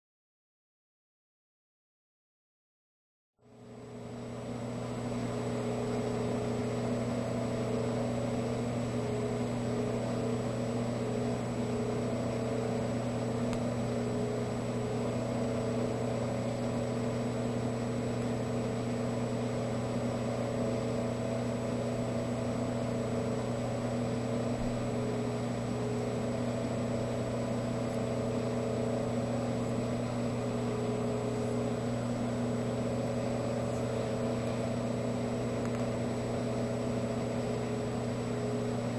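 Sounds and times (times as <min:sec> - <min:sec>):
low drone of held tones: 0:27.3 - 0:35.8.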